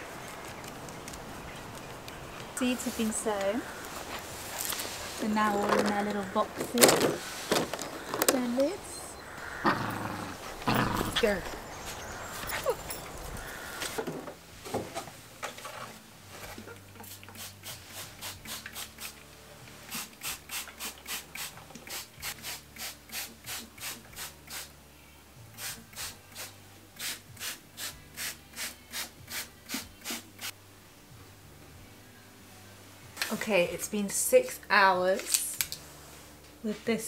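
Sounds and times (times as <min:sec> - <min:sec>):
low steady hum: 0:30.6 - 0:35.0.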